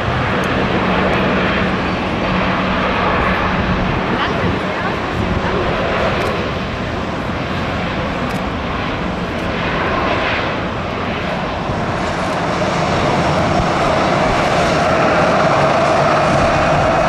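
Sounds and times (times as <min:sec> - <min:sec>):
jet engines rushing: 0:00.0 - 0:17.0.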